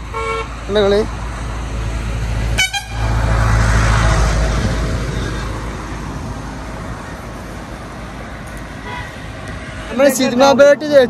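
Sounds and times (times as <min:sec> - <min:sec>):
vehicle passing on road: 0:00.0 - 0:11.0.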